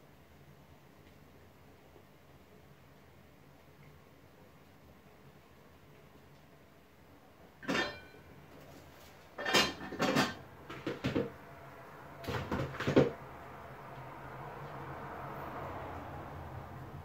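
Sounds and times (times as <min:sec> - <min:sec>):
metal pans and lid clattering: 0:07.6 - 0:08.2, 0:09.4 - 0:11.3.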